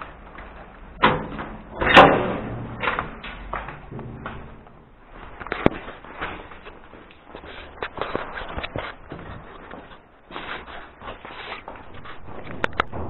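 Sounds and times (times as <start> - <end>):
steel door banging open: 0.9 - 5.1, 11.9 - 13.0.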